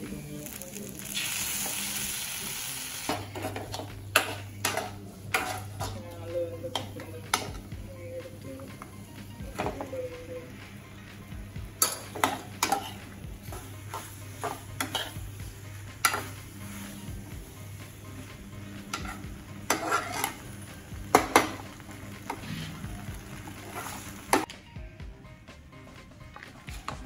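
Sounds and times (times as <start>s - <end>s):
low sizzle: 0.0s - 24.5s
fork clinking and scraping pan: 11.8s - 13.0s, 13.9s - 15.2s, 18.9s - 20.5s.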